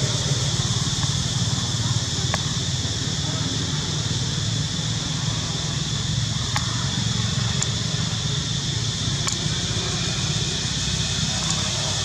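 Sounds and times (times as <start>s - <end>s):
constant hiss: 0.0s - 12.0s.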